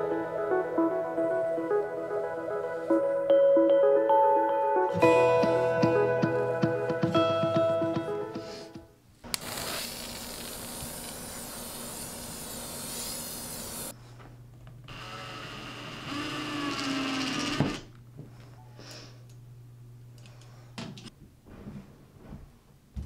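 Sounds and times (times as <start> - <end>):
steady rushing hiss: 9.4 - 13.9
cordless drill whirring: 14.9 - 17.9.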